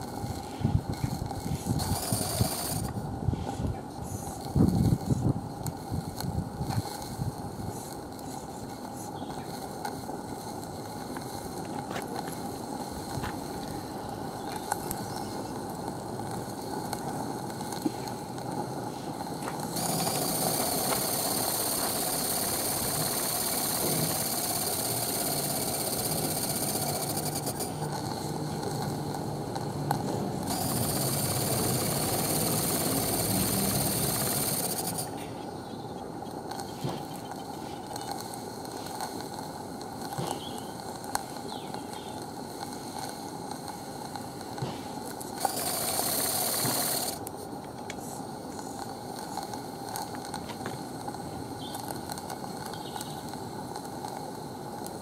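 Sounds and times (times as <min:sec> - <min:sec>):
loud high steam hiss: 0:00.0 - 0:55.0
low steam hiss: 0:00.0 - 0:55.0
faint ticks: 0:04.3 - 0:35.1, 0:36.2 - 0:55.0.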